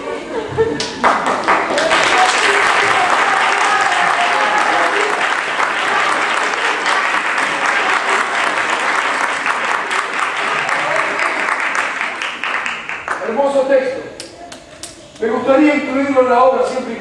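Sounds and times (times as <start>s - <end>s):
crowd applauding: 0.8s - 13.6s.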